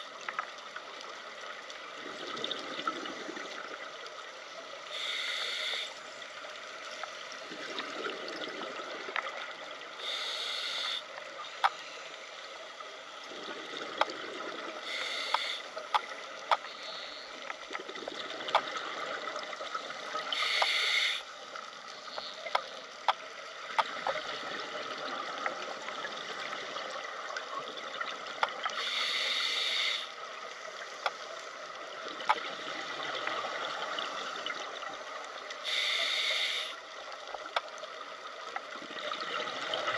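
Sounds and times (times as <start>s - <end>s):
exhaled bubbles underwater: 1.8s - 4.1s, 7.3s - 10.0s, 13.2s - 15.1s, 17.6s - 20.5s
underwater hiss: 4.8s - 22.5s, 28.6s - 31.9s, 32.6s - 37.2s
sharp clicks underwater: 10.1s - 11.8s, 13.8s - 19.2s, 20.2s - 21.3s, 22.0s - 24.3s, 28.1s - 29.8s, 31.0s - 31.3s, 32.1s - 33.6s, 35.8s - 38.7s.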